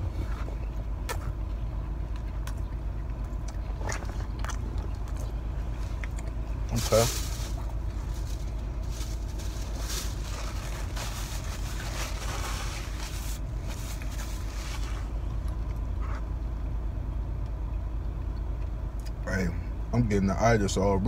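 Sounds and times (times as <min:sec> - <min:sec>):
soft chewing: 0:00.0 - 0:13.0
car engine idling: 0:00.0 - 0:21.0.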